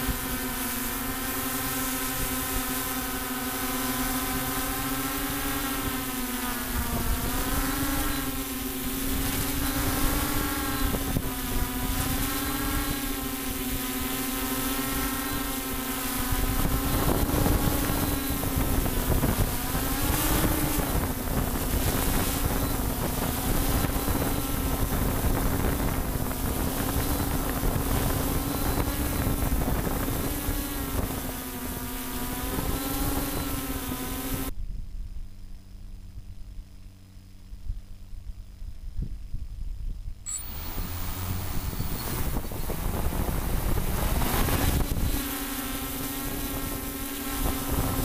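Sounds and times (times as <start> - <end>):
drone propellers humming: 0.0 - 38.1, 40.2 - 48.0
wind buffeting microphone: 6.8 - 14.0, 16.2 - 31.4, 38.8 - 48.0.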